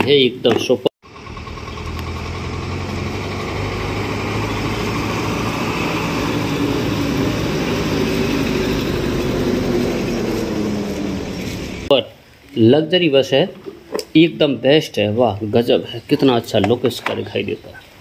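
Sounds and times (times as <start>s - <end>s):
bus diesel engine passing: 1.0s - 11.9s.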